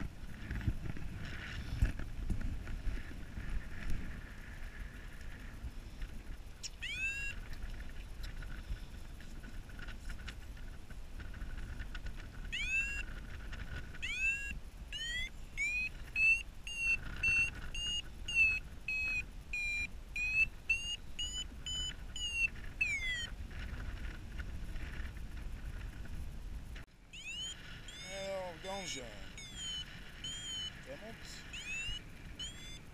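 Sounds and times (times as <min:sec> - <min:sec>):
wind rush on microphone: 0:00.0 - 0:26.9
variometer beeping: 0:06.6 - 0:07.9, 0:12.4 - 0:23.4, 0:27.1 - 0:32.9.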